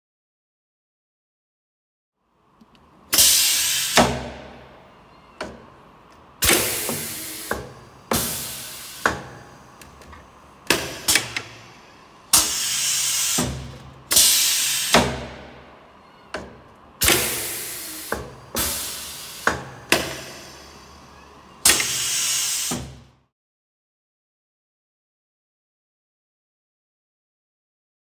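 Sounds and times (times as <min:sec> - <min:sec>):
compressed air hiss: 0:03.1 - 0:04.8, 0:06.4 - 0:15.8, 0:17.0 - 0:23.1
metal clunks of machine: 0:03.2 - 0:04.7, 0:06.4 - 0:11.7, 0:12.3 - 0:15.6, 0:16.3 - 0:20.6, 0:21.6 - 0:23.1.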